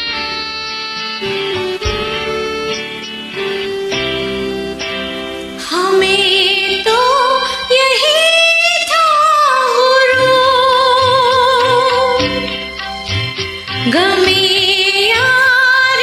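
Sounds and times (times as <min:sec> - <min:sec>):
karaoke backing track: 0:00.0 - 0:16.0
woman singing: 0:05.6 - 0:12.6, 0:13.8 - 0:16.0.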